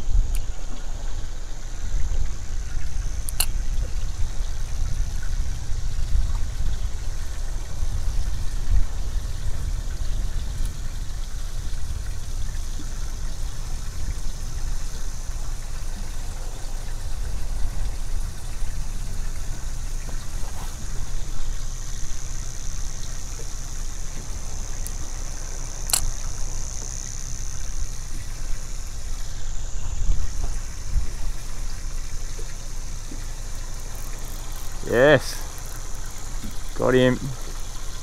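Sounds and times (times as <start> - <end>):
water lapping against hull: 0.0 - 38.0
wind buffeting microphone: 1.7 - 14.6, 27.3 - 38.0
faint high hiss: 5.8 - 38.0.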